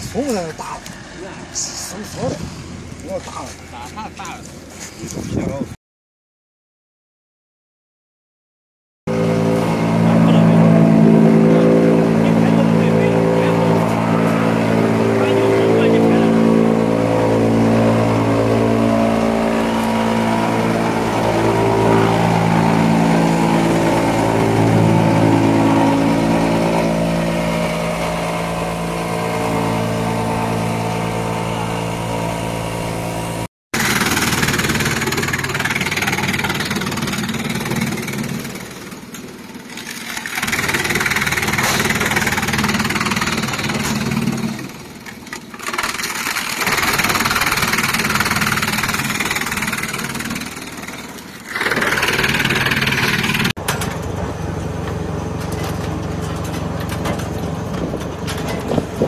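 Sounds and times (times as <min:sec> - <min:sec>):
drum chipper chipping wood: 0:09.1 - 0:59.0
wood chipper machine drone: 0:09.1 - 0:59.0.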